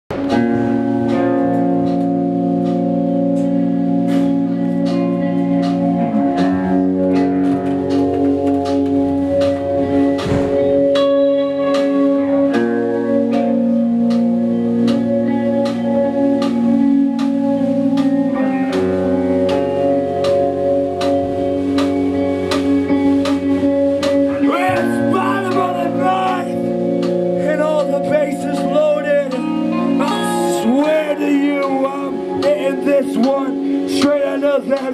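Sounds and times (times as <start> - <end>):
light percussion beat: 0.1 - 34.9
sustained guitar or organ chords: 0.1 - 34.9
drum hits: 5.6 - 12.7, 18.0 - 34.9
person singing: 24.3 - 26.7.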